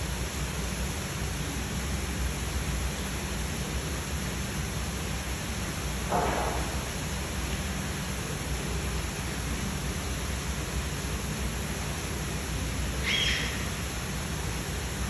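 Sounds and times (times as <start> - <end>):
steady rushing background noise: 0.0 - 15.0
high-pitched bird chirp: 13.0 - 13.7.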